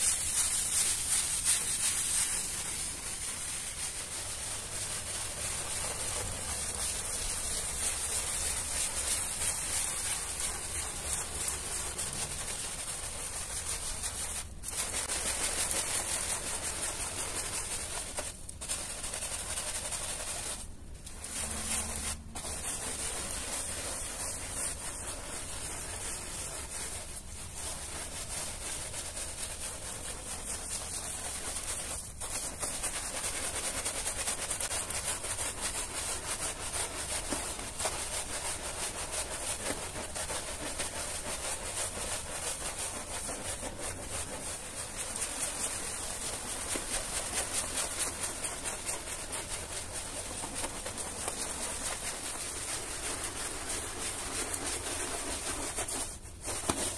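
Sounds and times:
brush scrubbing wet rug: 0:00.0 - 0:56.9.

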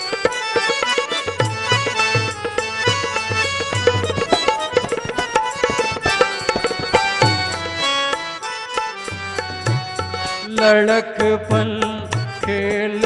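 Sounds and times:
harmonium melody: 0:00.0 - 0:13.0
hand drum strokes: 0:02.8 - 0:07.9.

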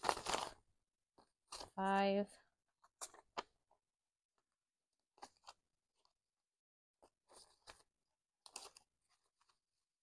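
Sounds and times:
paper banknotes rustling: 0:00.0 - 0:00.6.

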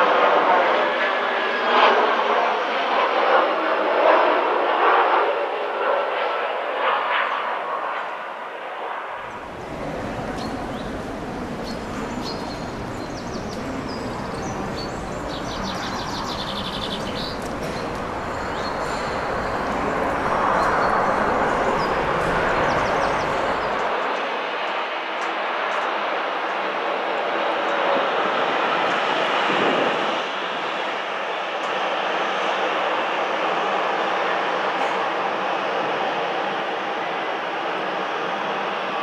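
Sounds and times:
steady rushing noise: 0:09.0 - 0:25.6
songbirds chirping: 0:09.2 - 0:24.3.

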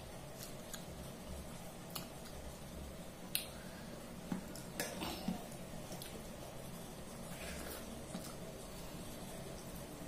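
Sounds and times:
fingers squishing food: 0:00.0 - 0:03.6
steady low hum: 0:00.0 - 0:10.0.

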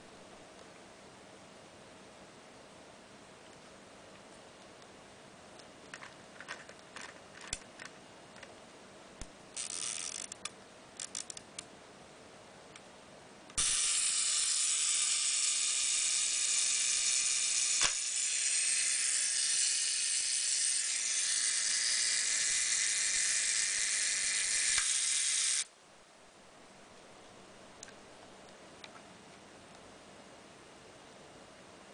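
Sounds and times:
camera ratcheting: 0:09.6 - 0:11.4, 0:20.8 - 0:25.6
clockwork self-timer buzzing: 0:13.6 - 0:25.7.

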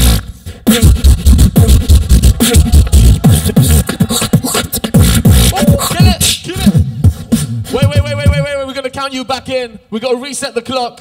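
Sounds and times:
beatboxed snare and hi-hat clicks: 0:00.0 - 0:08.6
beatboxing kick-drum booms: 0:00.0 - 0:08.9.

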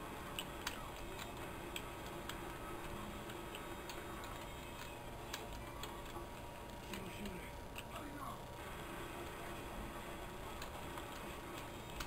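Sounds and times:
faint steady hum: 0:00.0 - 0:12.0
computer keyboard typing: 0:00.2 - 0:08.0, 0:10.4 - 0:12.0.

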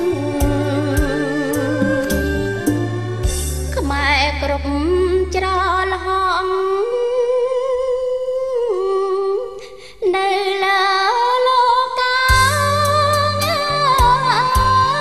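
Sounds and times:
low musical accompaniment: 0:00.0 - 0:05.2
person singing slow song: 0:00.0 - 0:05.4.

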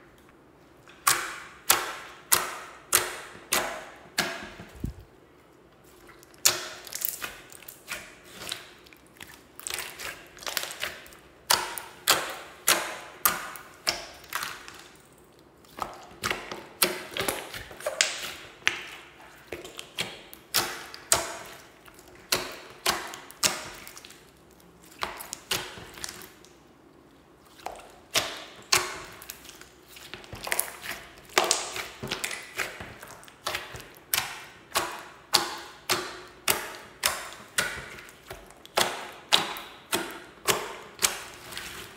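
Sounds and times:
slime clicking and popping: 0:06.4 - 0:08.0, 0:30.3 - 0:34.4.

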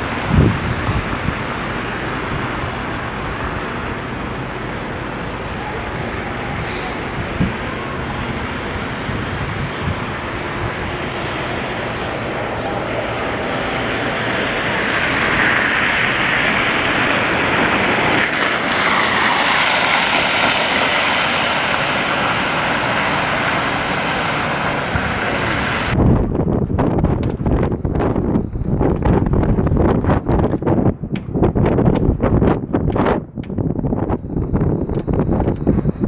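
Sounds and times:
vehicle driving past on snow: 0:11.0 - 0:26.0.

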